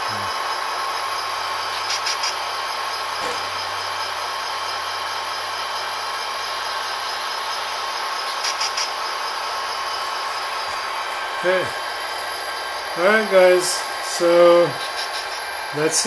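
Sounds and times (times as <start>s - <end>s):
model diesel engine idling drone: 0.0s - 16.0s
high ticks: 1.8s - 2.4s, 8.2s - 9.0s.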